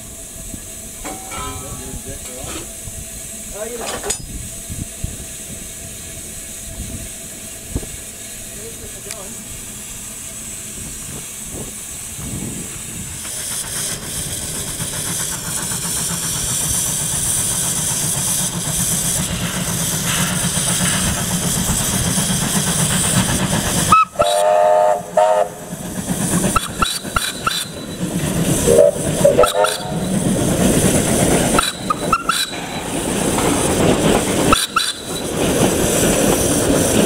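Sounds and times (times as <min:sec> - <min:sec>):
moving train rumble: 0:00.0 - 0:37.0
steam locomotive hiss: 0:00.0 - 0:37.0
steam whistle blowing: 0:23.9 - 0:25.7, 0:28.6 - 0:30.2.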